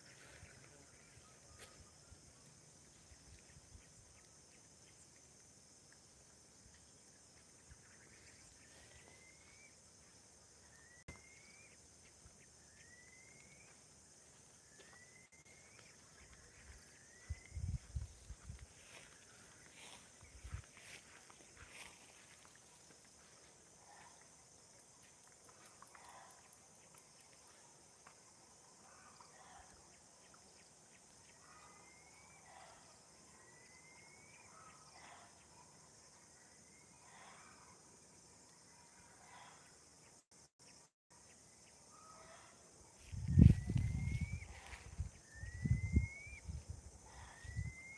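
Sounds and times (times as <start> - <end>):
high insect drone: 0.0 - 47.9
rising whistled call: 45.3 - 46.5.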